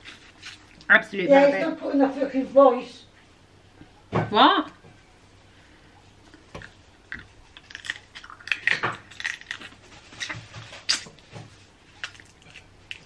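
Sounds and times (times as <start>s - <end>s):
chewing crab meat: 0.0s - 0.9s, 6.2s - 13.0s
wet mouth noises: 6.2s - 11.2s, 11.9s - 13.0s.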